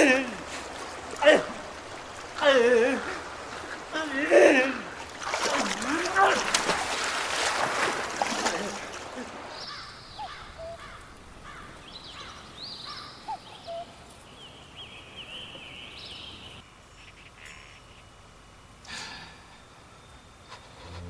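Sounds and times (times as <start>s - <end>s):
outdoor hush: 0.0s - 21.0s
birds chirping: 8.8s - 21.0s.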